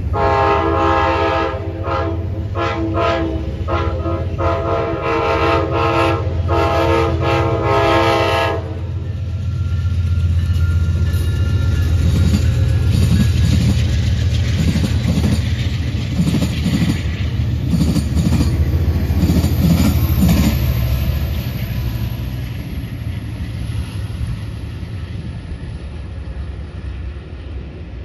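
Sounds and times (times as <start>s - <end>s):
locomotive drone: 0.0s - 28.0s
train wheels clacking over rails: 9.1s - 26.6s.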